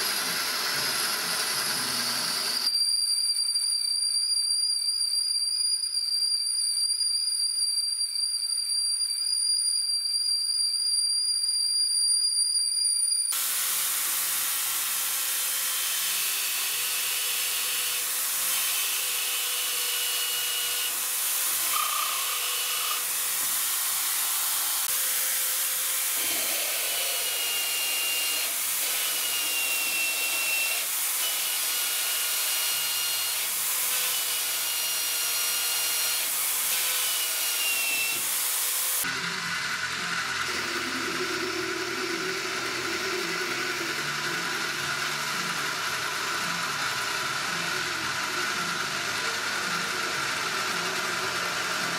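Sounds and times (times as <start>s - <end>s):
metal lathe humming: 0.0s - 2.6s, 13.4s - 51.9s
drill press drilling metal: 0.0s - 2.7s, 13.4s - 51.9s
drill bit squealing: 0.0s - 51.9s.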